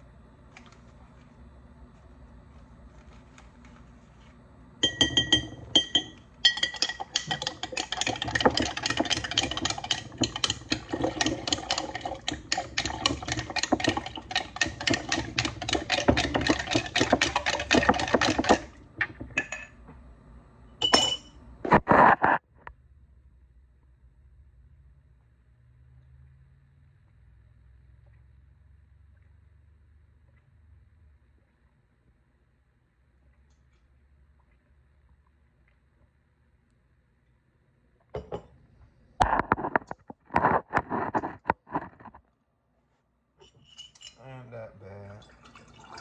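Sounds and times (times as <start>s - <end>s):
spoon clinking against glass jar: 4.8s - 18.1s, 20.8s - 21.4s, 43.4s - 44.2s.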